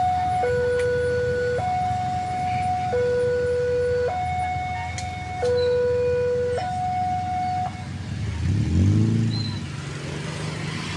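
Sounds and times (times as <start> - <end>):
two-tone level crossing alarm: 0.0 - 8.0.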